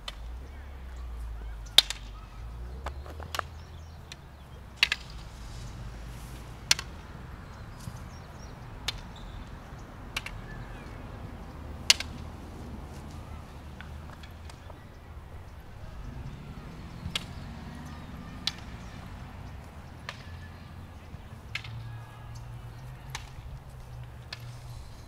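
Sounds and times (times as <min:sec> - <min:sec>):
wooden swords clacking: 0:01.7 - 0:02.2, 0:02.8 - 0:05.4, 0:06.6 - 0:07.1, 0:08.8 - 0:09.2, 0:10.1 - 0:10.5, 0:11.8 - 0:14.8, 0:16.2 - 0:24.9.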